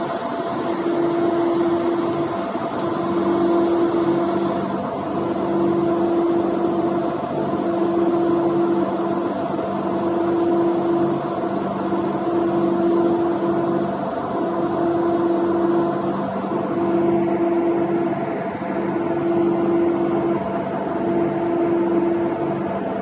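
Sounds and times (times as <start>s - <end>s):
high machine tone: 0.0s - 4.8s
deck machinery humming: 0.0s - 23.0s.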